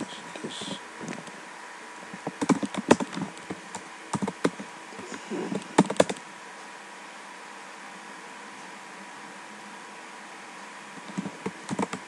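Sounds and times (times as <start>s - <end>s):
typing on computer keyboard: 2.4s - 3.3s, 4.2s - 4.6s, 5.8s - 6.2s, 11.1s - 12.0s.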